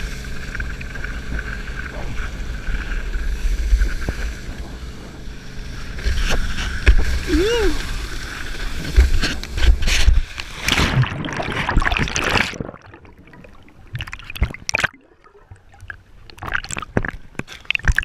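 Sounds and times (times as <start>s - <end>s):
muffled underwater gurgling: 0.0s - 10.2s
water spraying against camera: 0.0s - 10.8s
water splashes and drips: 5.9s - 18.0s.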